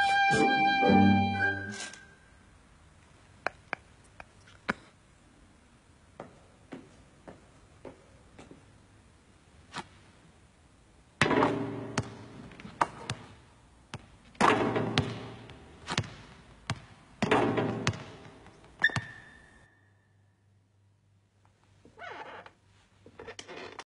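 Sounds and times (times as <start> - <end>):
brief high tone: 0.0 - 2.2.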